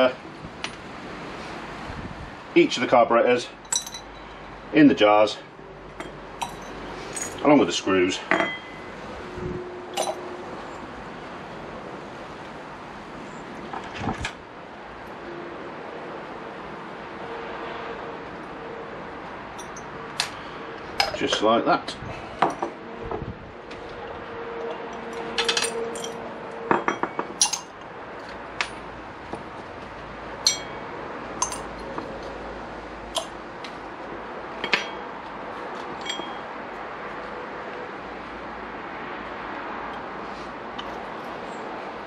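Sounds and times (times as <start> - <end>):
metal parts clinking in glass jars: 3.6 - 4.3, 6.0 - 7.4, 10.0 - 10.2, 19.6 - 19.9, 25.0 - 27.8, 30.4 - 30.8, 31.4 - 31.9, 33.2 - 33.4, 36.0 - 36.4.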